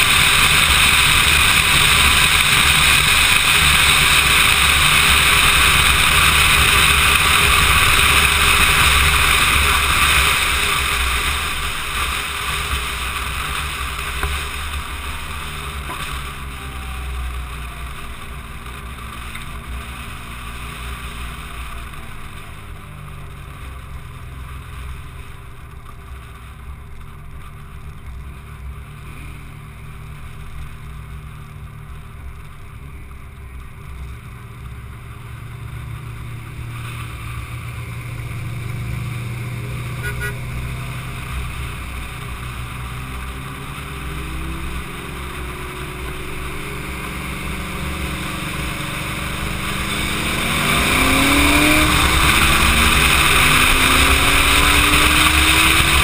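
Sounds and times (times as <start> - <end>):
car engine drone: 0.0 - 56.0
wind and road noise: 0.0 - 56.0.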